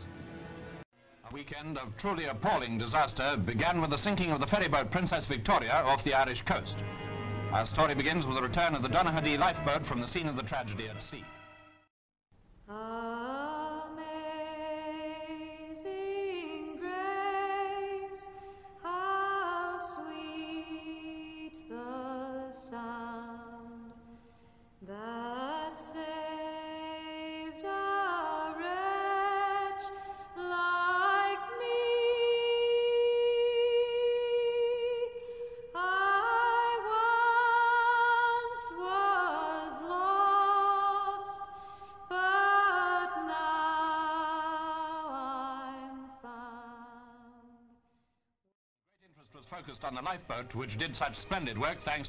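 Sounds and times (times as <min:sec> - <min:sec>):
woman singing: 0:12.7 - 0:24.0, 0:24.8 - 0:47.6.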